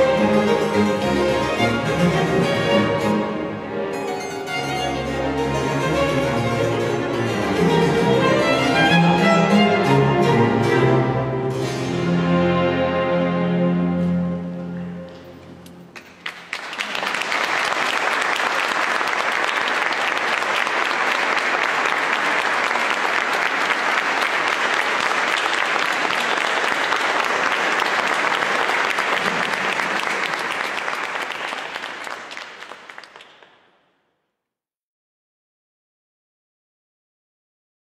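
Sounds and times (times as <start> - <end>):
audience applauding: 15.9 - 33.8.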